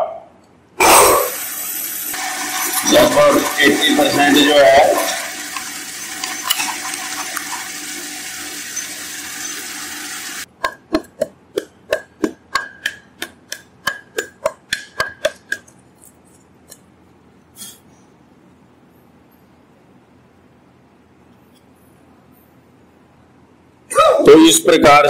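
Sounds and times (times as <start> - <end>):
drill cutting into wood: 1.1 - 10.5.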